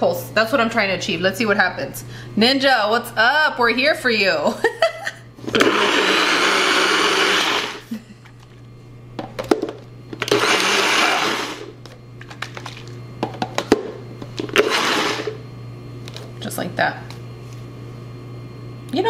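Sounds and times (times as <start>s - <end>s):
blender pulsing: 5.4s - 8.0s, 10.2s - 11.8s, 14.4s - 15.4s.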